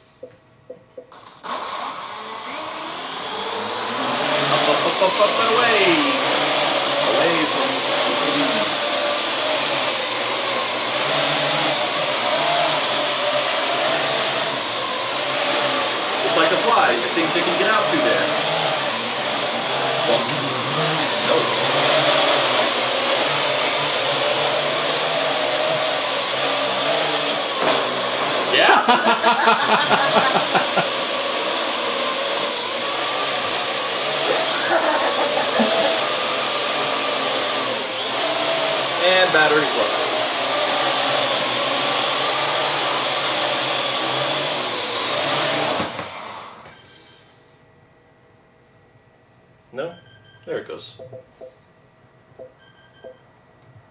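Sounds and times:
quadcopter propellers whirring: 1.2s - 47.2s.

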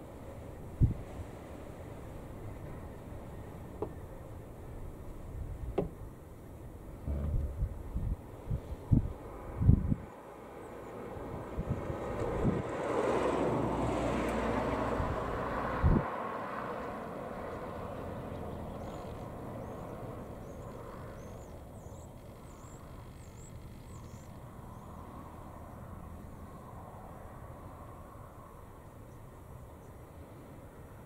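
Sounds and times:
wind thumping on microphone: 0.8s - 1.1s, 7.0s - 10.1s
vehicle passing: 7.0s - 7.8s, 11.5s - 19.5s.

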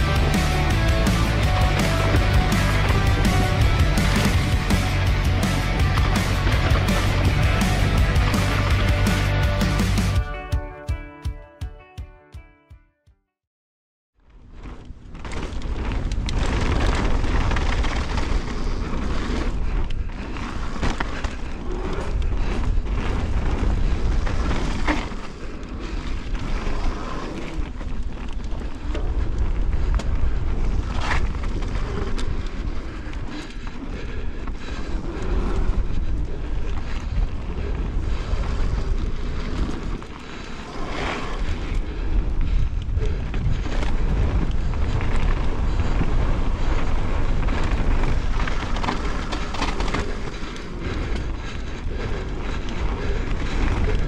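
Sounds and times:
bike knocking and rattling: 0.0s - 10.1s, 14.3s - 54.0s
wind buffeting microphone: 14.5s - 54.0s.

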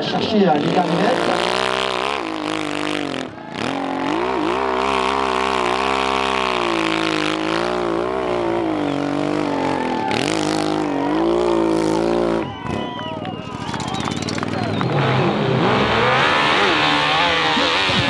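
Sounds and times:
motorcycle engine revving hard: 0.0s - 13.0s, 13.6s - 18.0s.

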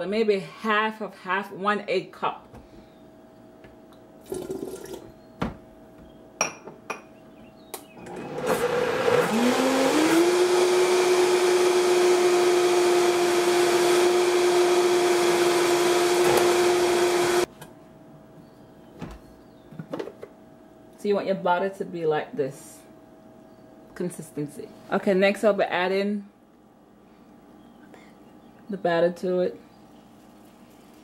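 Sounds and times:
blender motor whining: 8.0s - 17.5s.

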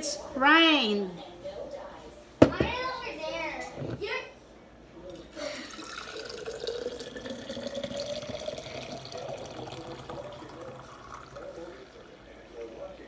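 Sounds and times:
juice pouring into a glass jar: 5.5s - 12.6s.

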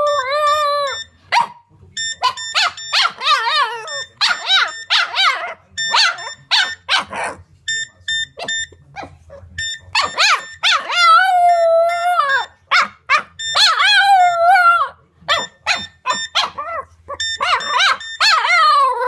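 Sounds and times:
dog howling and yipping: 0.0s - 1.0s, 2.6s - 7.4s, 10.0s - 19.0s
phone handset beeps: 0.0s - 1.2s, 1.9s - 6.9s, 7.7s - 8.9s, 9.6s - 12.4s, 13.4s - 14.7s, 15.3s - 16.6s, 17.2s - 18.8s.

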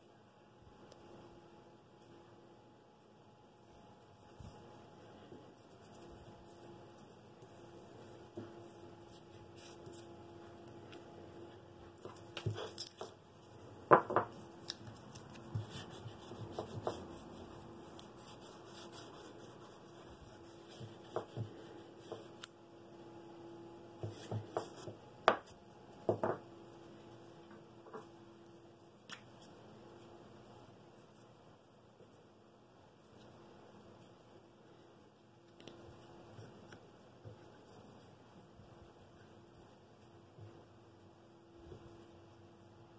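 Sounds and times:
faint steady hum: 0.0s - 42.9s
paper and tape rustling: 11.9s - 22.5s.

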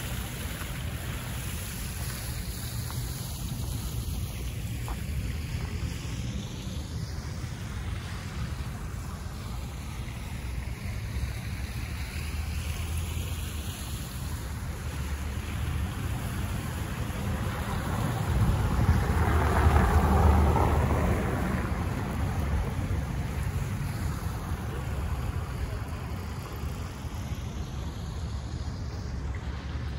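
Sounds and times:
fountain water splashing: 0.0s - 29.9s
wind rumbling on microphone: 14.4s - 29.9s.

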